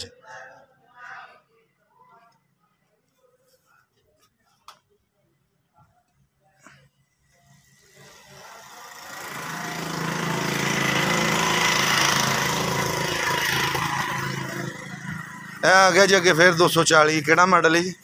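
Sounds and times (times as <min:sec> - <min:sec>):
vehicle engine running: 0:07.7 - 0:17.4.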